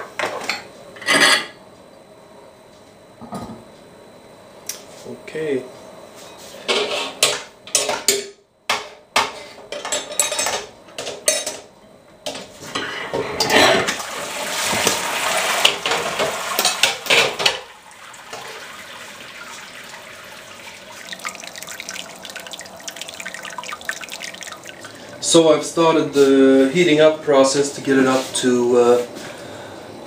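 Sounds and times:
liquid gushing and splashing: 14.1s - 25.3s
liquid trickling: 16.6s - 25.6s.

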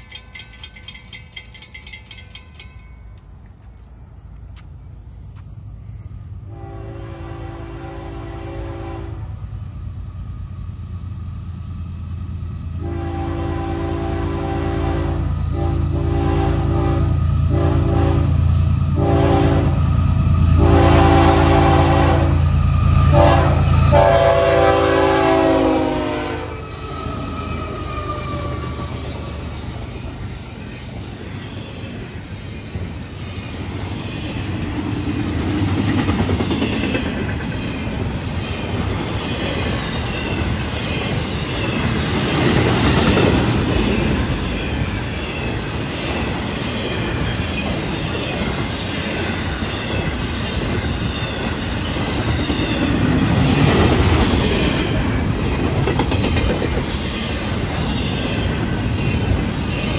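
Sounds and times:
locomotive engine rumble: 0.0s - 59.9s
train wheels on rails: 0.0s - 59.9s
train horn blasts: 6.5s - 9.5s, 12.8s - 27.0s.

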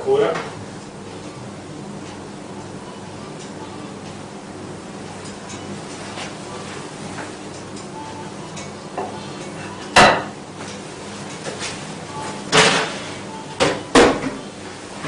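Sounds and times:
faint hum: 0.0s - 15.0s
oven dish clunking: 8.5s - 10.4s.

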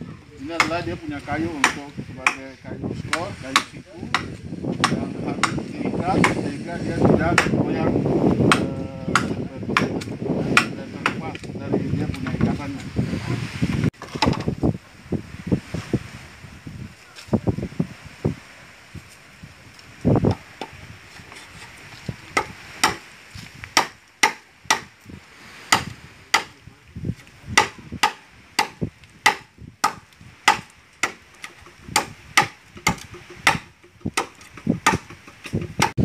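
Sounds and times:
blade chopping bamboo: 0.6s - 0.8s, 1.6s - 2.4s, 3.1s - 5.6s, 8.5s - 11.2s, 22.4s - 23.1s, 23.7s - 24.9s, 25.7s - 26.6s, 27.6s - 36.0s.

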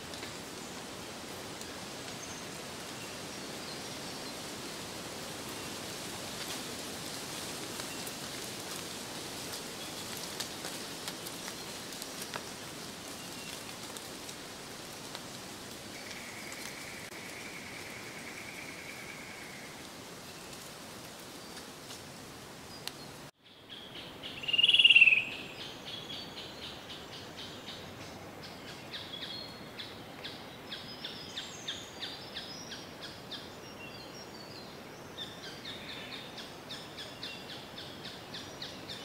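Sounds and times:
light rain hissing: 0.0s - 23.4s.

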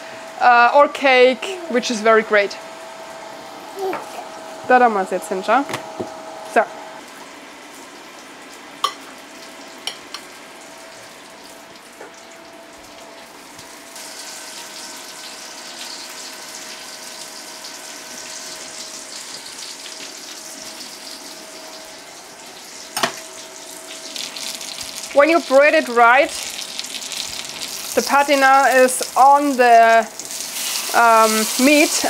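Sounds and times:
food sizzling in frying pan: 7.6s - 32.0s.

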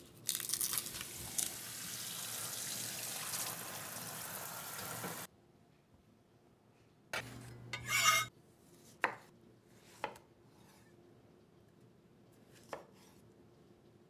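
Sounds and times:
knife scraping rub: 7.8s - 8.3s.

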